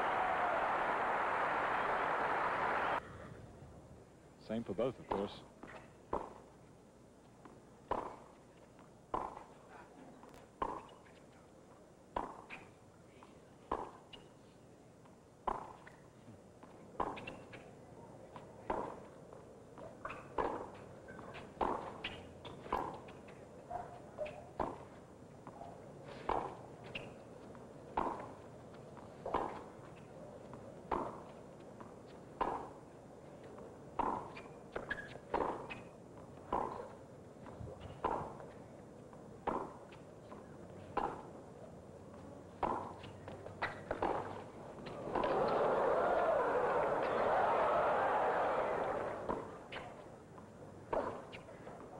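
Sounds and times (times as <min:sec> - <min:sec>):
tennis ball hit by racket: 0:07.9 - 0:08.3, 0:09.1 - 0:09.4, 0:12.2 - 0:12.7, 0:15.5 - 0:15.9, 0:21.4 - 0:23.1, 0:26.2 - 0:27.2, 0:28.0 - 0:28.4, 0:32.4 - 0:32.7, 0:34.0 - 0:35.9, 0:36.5 - 0:36.9, 0:37.9 - 0:38.4, 0:39.4 - 0:39.9, 0:40.9 - 0:41.3, 0:42.6 - 0:49.9.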